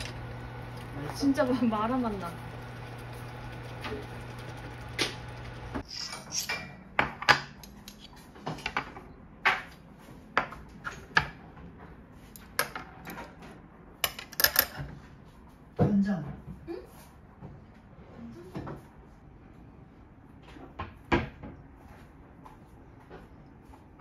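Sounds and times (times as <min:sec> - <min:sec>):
steady hum: 0:00.0 - 0:05.8.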